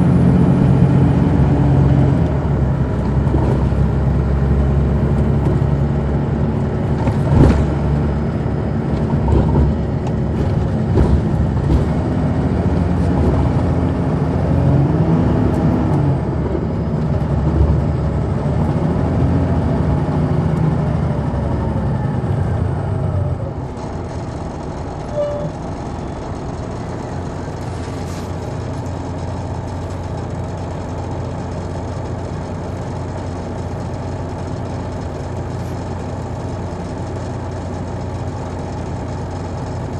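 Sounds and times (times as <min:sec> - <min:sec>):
bus engine: 0:00.0 - 0:39.9
sharp knocks and rattles: 0:06.8 - 0:08.2, 0:08.9 - 0:13.7.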